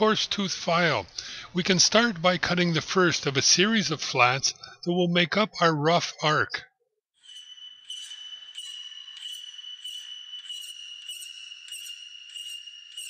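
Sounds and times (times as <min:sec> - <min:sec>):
high metallic ringing: 0:07.2 - 0:13.0.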